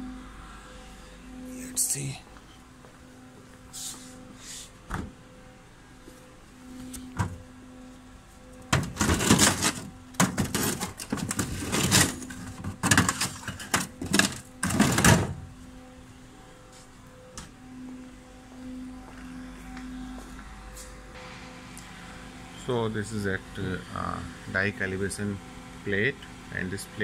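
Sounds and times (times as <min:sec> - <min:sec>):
plastic rattling and scraping: 0:08.7 - 0:15.4.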